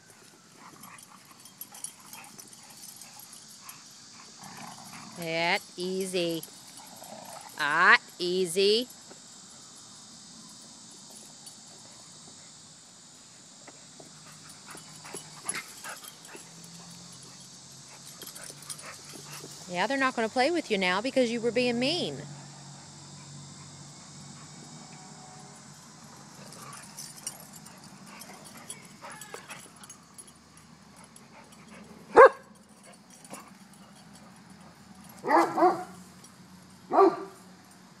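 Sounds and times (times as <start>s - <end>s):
insect buzzing: 0.0s - 37.9s
dog growling: 4.4s - 5.3s, 6.8s - 7.6s
dogs tussling knocks and scuffles: 14.0s - 19.7s, 32.6s - 36.3s
dog barking: 32.1s - 32.5s, 35.2s - 36.0s, 36.9s - 37.4s.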